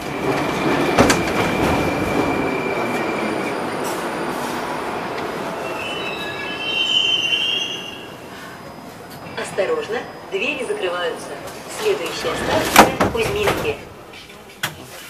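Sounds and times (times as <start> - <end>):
metro wheels squealing: 0.0 - 14.4
metro train rumble: 0.0 - 15.0.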